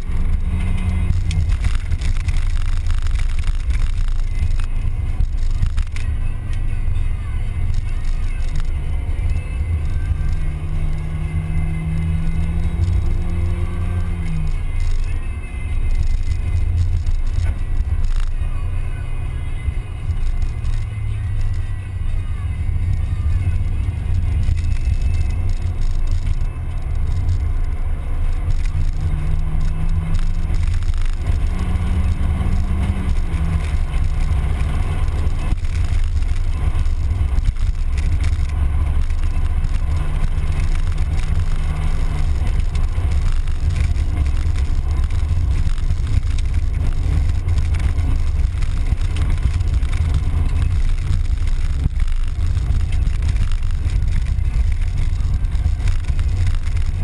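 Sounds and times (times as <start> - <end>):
car engine rumble: 0.0 - 57.0
road noise: 0.0 - 57.0.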